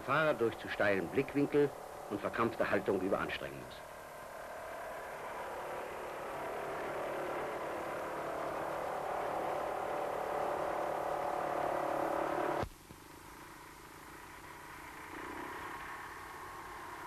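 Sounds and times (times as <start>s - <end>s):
tractor diesel engine running: 0.0s - 12.6s.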